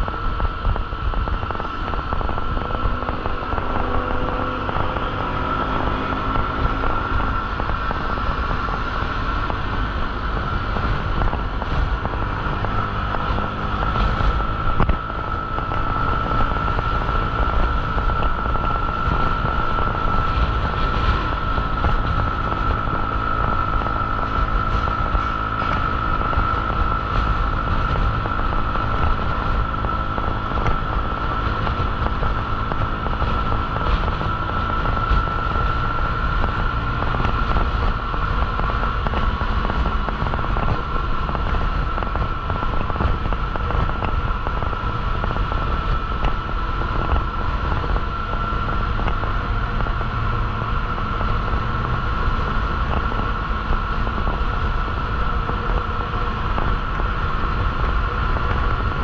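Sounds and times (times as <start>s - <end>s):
high-pitched whine: 0.0s - 59.0s
motorbike engine and road noise: 0.0s - 59.0s
wind buffeting microphone: 0.0s - 59.0s.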